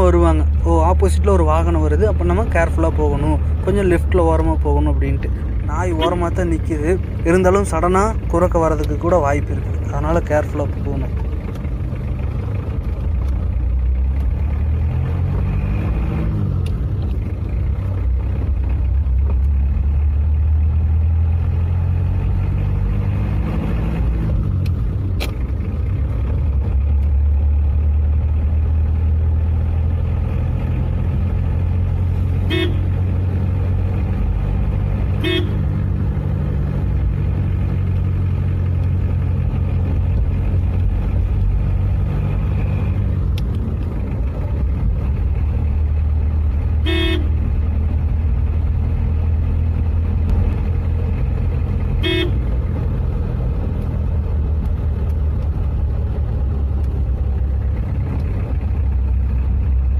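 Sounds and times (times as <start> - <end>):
car engine accelerating: 0.0 - 59.9
car horn toots: 32.4 - 33.0, 35.2 - 35.6, 46.8 - 47.4, 52.0 - 52.5.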